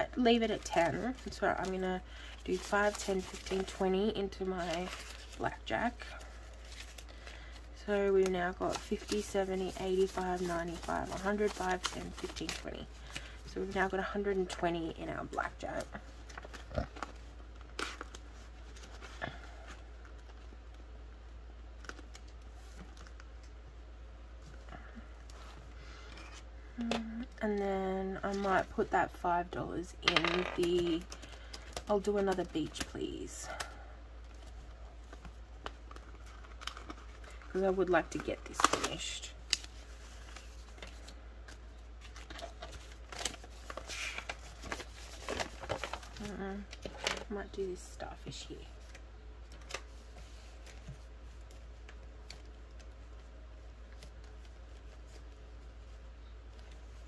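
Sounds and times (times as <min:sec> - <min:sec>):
steady low hum: 0:00.0 - 0:57.0
plastic page crinkling: 0:00.2 - 0:13.4, 0:15.2 - 0:20.6, 0:34.2 - 0:57.0
paper and plastic rustling: 0:00.2 - 0:14.6, 0:15.2 - 0:20.6, 0:34.2 - 0:57.0.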